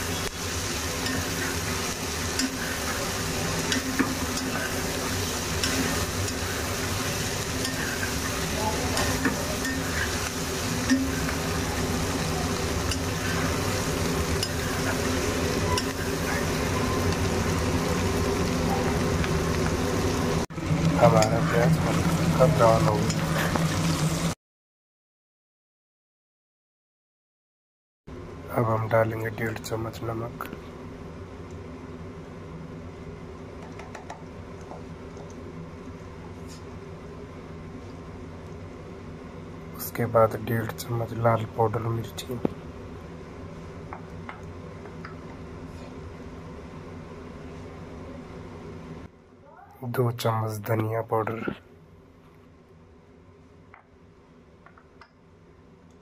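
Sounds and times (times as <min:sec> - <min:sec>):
onions sizzling in oil: 0:00.0 - 0:24.4.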